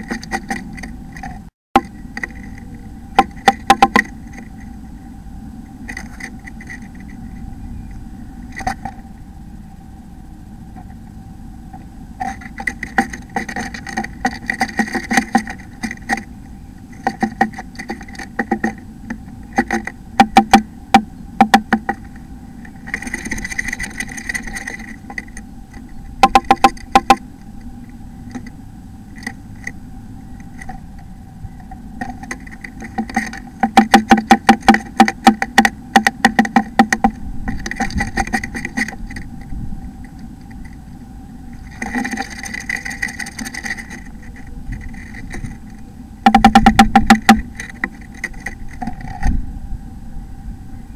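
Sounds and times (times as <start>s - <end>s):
bird tapping on wood: 0.0s - 4.6s, 11.7s - 16.3s, 16.9s - 27.2s, 29.1s - 29.8s, 32.0s - 39.3s, 41.6s - 49.1s
rustling in nest box: 0.0s - 9.1s, 10.4s - 49.5s
steady hum: 0.0s - 50.9s.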